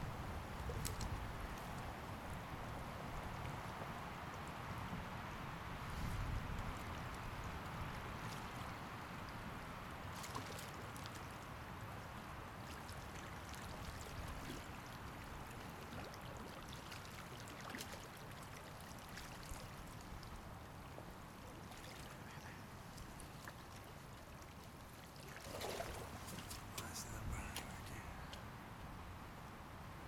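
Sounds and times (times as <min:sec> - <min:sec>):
river flowing: 0:07.1 - 0:29.6
faint small splashes: 0:10.1 - 0:11.5, 0:12.5 - 0:28.4.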